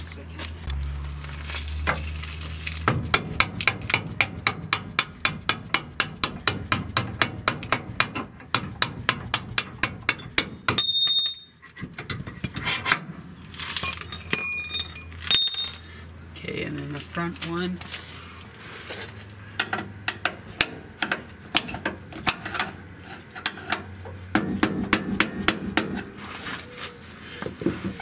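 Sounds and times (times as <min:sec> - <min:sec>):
metal clinks and ringing: 0:10.7 - 0:11.7, 0:13.8 - 0:16.2.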